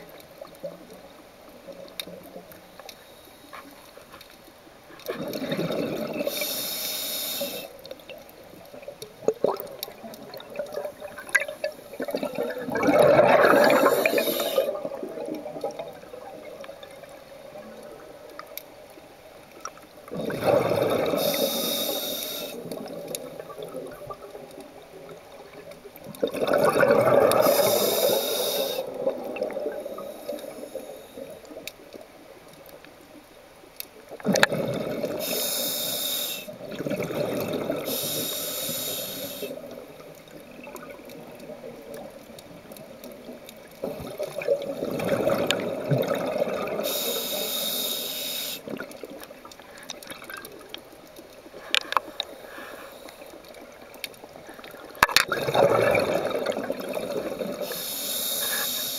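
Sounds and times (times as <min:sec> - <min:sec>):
exhaled bubbles rushing: 0:05.1 - 0:06.3, 0:09.2 - 0:17.2, 0:20.1 - 0:21.4, 0:26.1 - 0:27.6, 0:34.2 - 0:35.2, 0:36.6 - 0:37.9, 0:43.8 - 0:46.8, 0:55.0 - 0:57.6
regulator inhale hiss: 0:06.1 - 0:07.9, 0:13.5 - 0:14.9, 0:21.0 - 0:22.8, 0:27.3 - 0:29.0, 0:29.8 - 0:31.6, 0:35.0 - 0:36.6, 0:37.8 - 0:39.8, 0:46.8 - 0:48.8, 0:51.6 - 0:53.4, 0:57.6 - 0:58.9.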